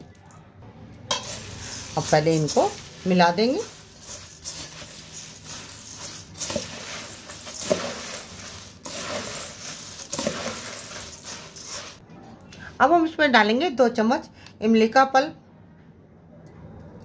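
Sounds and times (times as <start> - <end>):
spoon stirring puffed rice: 1.0 - 12.0.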